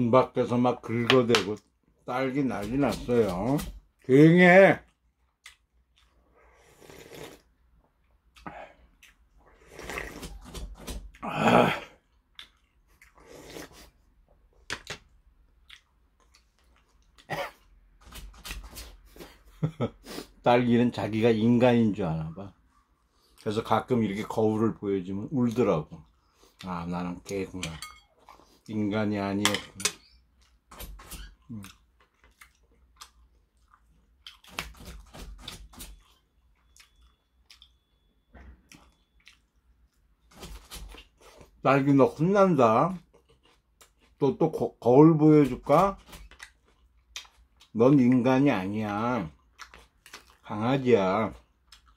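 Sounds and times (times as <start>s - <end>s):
person chewing raw onion: 4.8s - 19.5s, 30.0s - 41.6s, 42.9s - 44.5s, 45.3s - 51.9s
person slurping broth: 6.4s - 7.5s, 9.5s - 10.4s, 13.1s - 14.0s.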